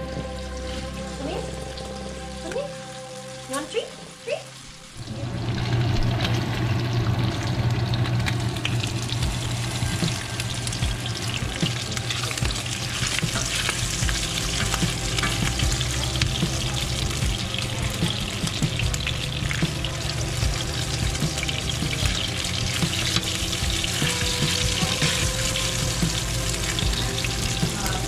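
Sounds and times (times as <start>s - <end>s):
bacon sizzling in a skillet: 0.0s - 28.0s
spatula turning bacon: 5.6s - 28.0s.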